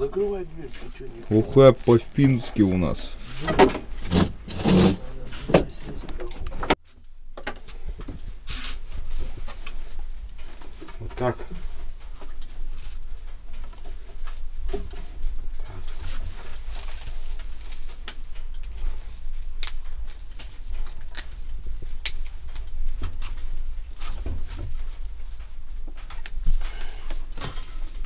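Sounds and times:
conifer branches rustling: 8.5s - 28.0s
twigs snapping and tapping wood: 19.6s - 23.4s, 26.0s - 26.5s.

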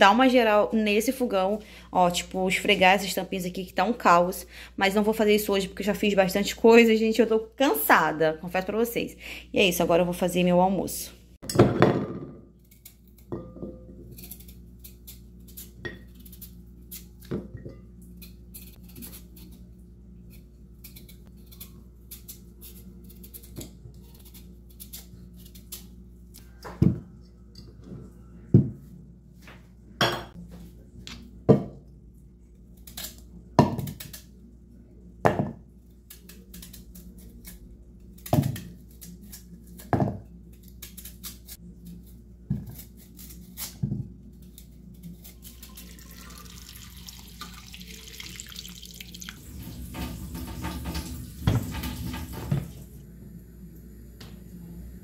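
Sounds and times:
knife scraping while peeling: 12.6s - 13.3s, 14.0s - 17.3s, 18.0s - 26.5s, 35.9s - 45.9s.

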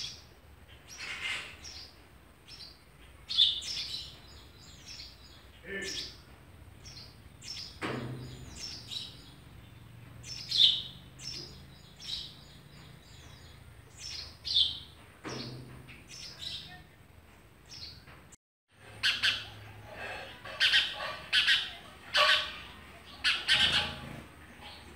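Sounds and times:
sparrows chirping: 0.0s - 18.2s, 18.8s - 24.9s.

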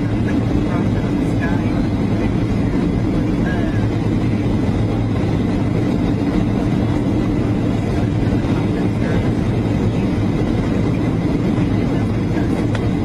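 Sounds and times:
jet engine drone and rushing air: 0.0s - 13.0s.

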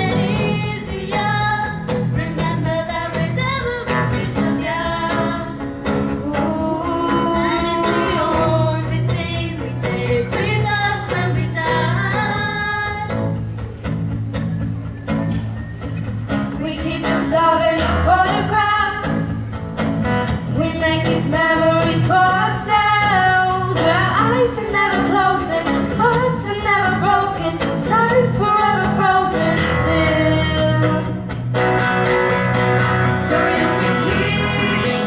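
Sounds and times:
girls singing into a microphone: 0.0s - 13.2s, 20.6s - 31.1s, 33.0s - 35.0s
instrumental accompaniment: 0.0s - 35.0s.

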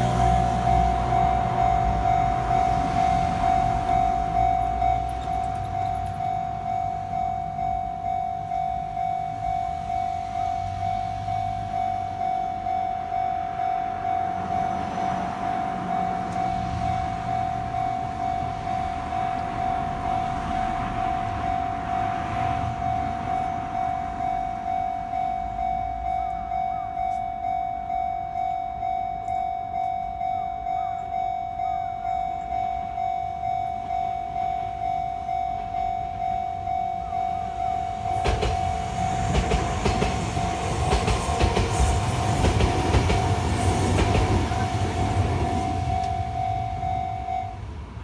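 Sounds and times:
train wheels rushing on rails: 0.0s - 24.8s, 36.7s - 48.0s
level crossing alarm dinging: 0.0s - 47.8s.

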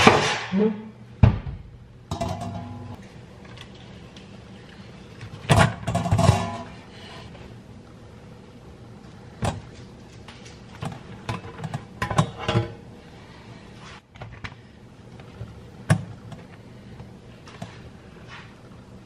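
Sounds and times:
metal loaf pan clattering: 5.5s - 6.8s.

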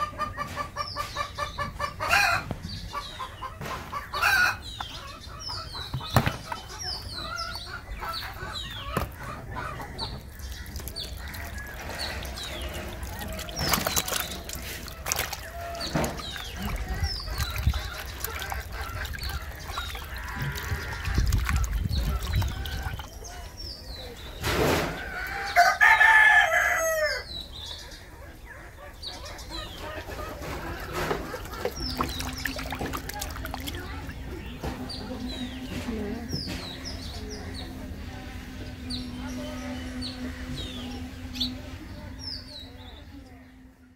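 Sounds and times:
chickens clucking: 0.0s - 43.5s
tap water running into basin: 9.9s - 23.3s, 30.3s - 35.0s.

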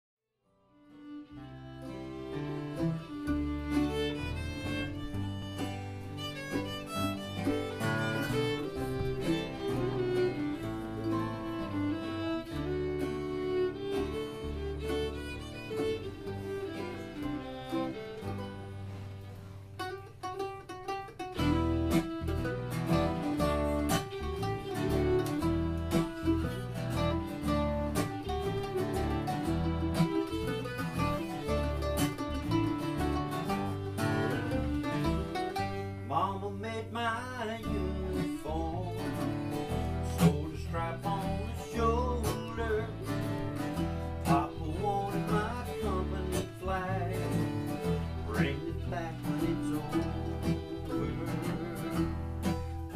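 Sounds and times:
acoustic bluegrass band playing: 0.8s - 52.9s.

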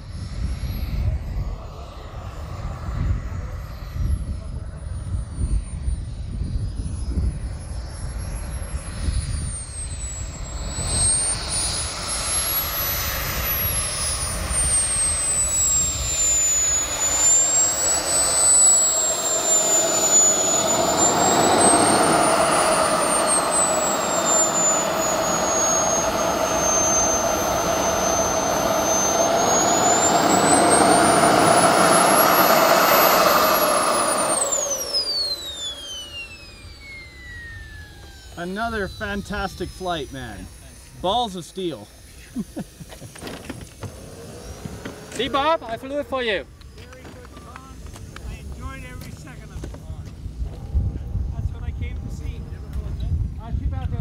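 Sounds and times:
jet turbine whistle: 0.0s - 54.0s.

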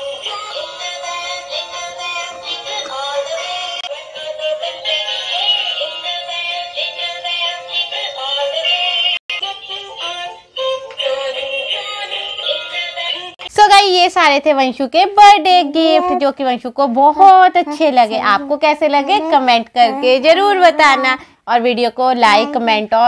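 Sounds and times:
synthetic singing voice: 0.0s - 13.4s.

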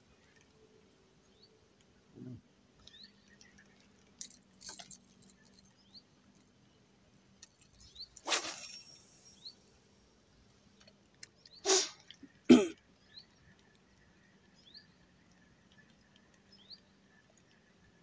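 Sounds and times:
faint bird chirps: 7.4s - 9.7s
man coughing: 12.5s - 12.8s.

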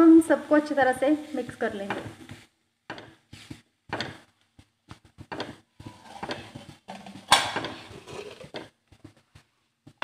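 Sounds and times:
spatula knocking pan: 5.2s - 8.7s
spatula scraping pan: 5.2s - 8.8s.

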